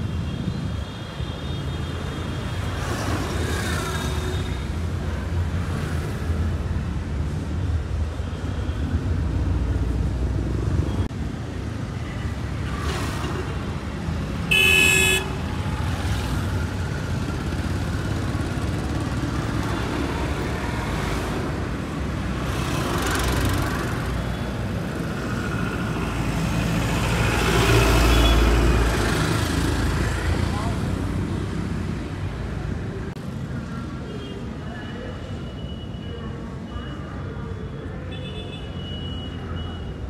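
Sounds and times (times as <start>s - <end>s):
road traffic rumbling: 0.0s - 40.0s
vehicle horn honk: 14.5s - 15.4s.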